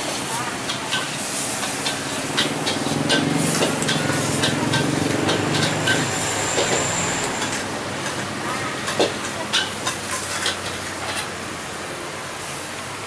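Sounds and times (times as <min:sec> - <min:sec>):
motorbike engine passing: 0:02.0 - 0:09.5.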